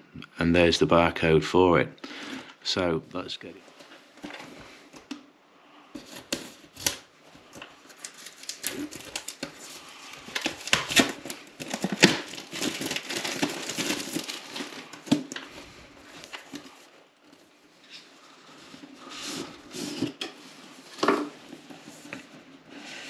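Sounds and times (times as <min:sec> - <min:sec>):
plastic film crinkling: 0:06.0 - 0:22.2
knife slitting plastic film: 0:06.1 - 0:07.1, 0:07.9 - 0:15.4.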